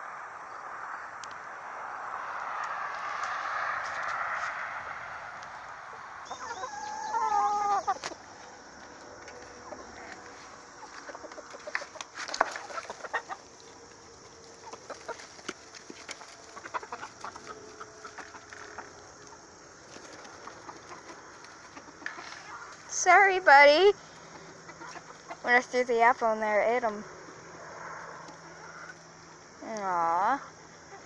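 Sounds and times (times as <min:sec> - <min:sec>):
chicken drawn-out call: 0:02.5 - 0:22.9, 0:27.6 - 0:29.2
chickens clucking: 0:04.0 - 0:31.0
chickens pecking taps: 0:06.3 - 0:23.0.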